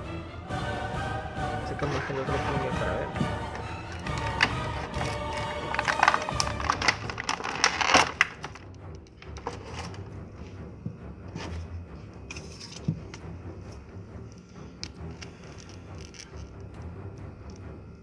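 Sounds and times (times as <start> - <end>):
packaging crinkling: 4.0 - 10.0
plastic toy clicking: 4.2 - 9.9.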